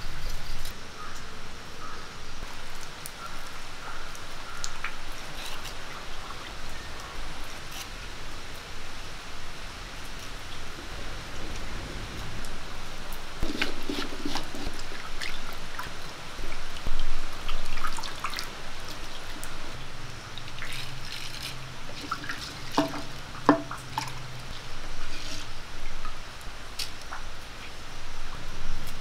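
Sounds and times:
water splashing in a clay pot: 13.4s - 26.2s.

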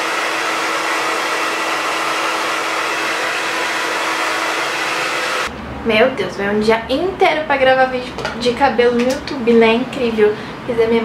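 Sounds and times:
hair dryer blowing: 0.0s - 5.5s.

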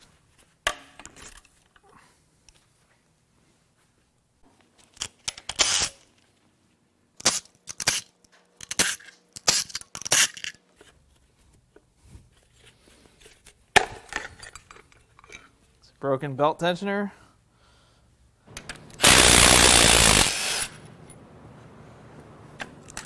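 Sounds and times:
cordless power tool whirring: 18.6s - 20.8s.

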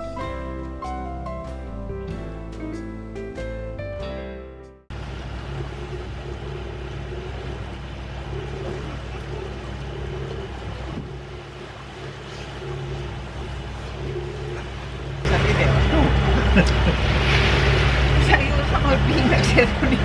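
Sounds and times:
guitar music: 0.0s - 4.8s
engine humming: 4.9s - 20.0s
steady rushing noise: 4.9s - 20.0s.

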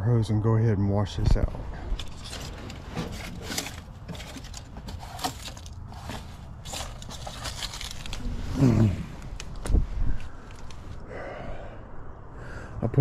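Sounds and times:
equipment clicks and scrapes: 1.9s - 8.3s.

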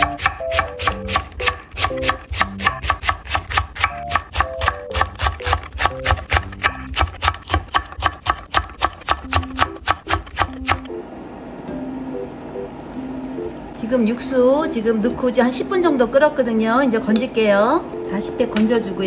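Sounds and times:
knife chopping on wooden board: 0.0s - 10.9s.

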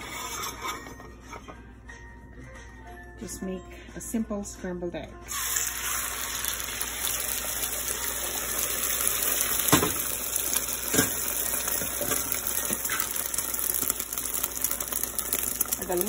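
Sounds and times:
egg sizzling in hot oil: 5.3s - 16.0s.

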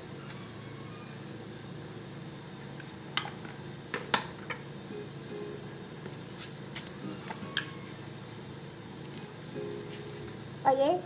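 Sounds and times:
quiet background music: 4.6s - 11.0s.

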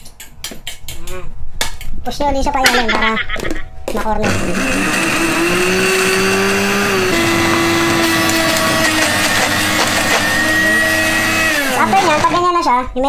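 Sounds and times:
blender motor grinding: 4.2s - 12.4s.

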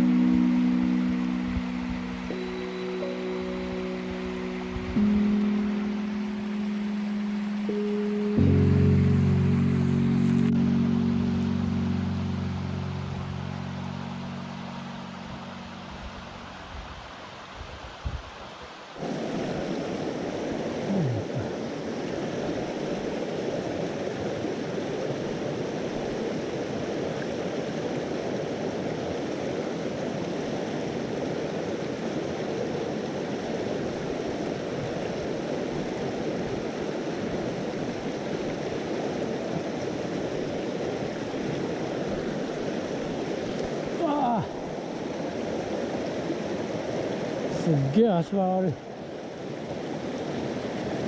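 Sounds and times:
low steady hum: 0.0s - 17.1s
stream rushing over rocks: 0.0s - 51.0s.

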